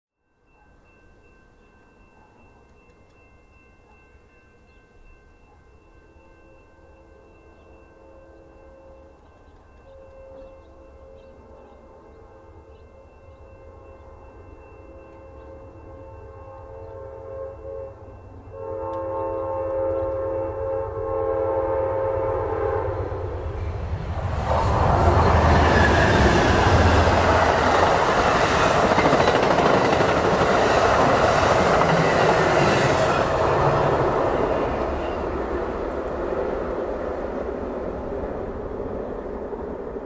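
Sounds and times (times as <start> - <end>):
train passing at speed: 5.8 - 40.0
locomotive air horn: 14.9 - 23.2.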